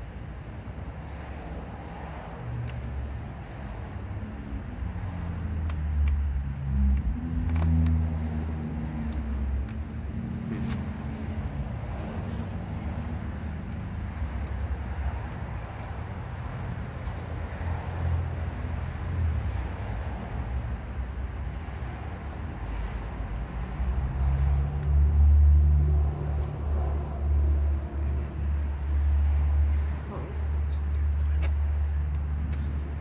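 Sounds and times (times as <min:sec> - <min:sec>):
vehicle engine rumbling: 0:00.0 - 0:33.0.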